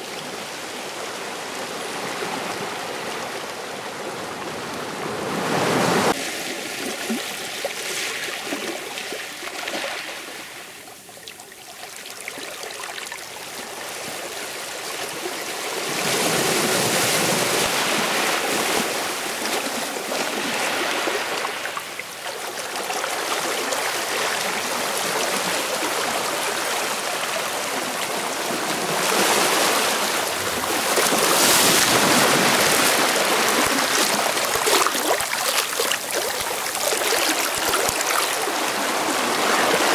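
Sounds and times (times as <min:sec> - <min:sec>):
sea waves washing in: 0:00.1 - 0:10.8, 0:24.4 - 0:39.9.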